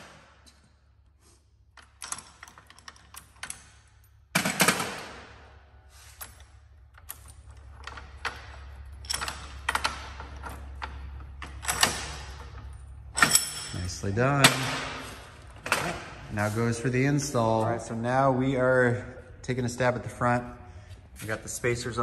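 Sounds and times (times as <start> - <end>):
metal clicks and clanks: 1.7 - 5.2, 6.2 - 16.2.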